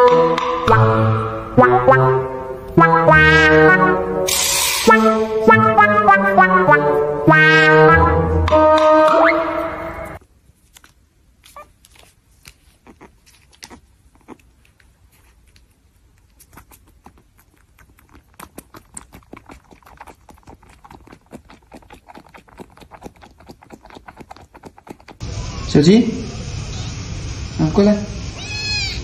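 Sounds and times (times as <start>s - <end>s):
kitten sucking from a bottle: 12.4s - 25.2s.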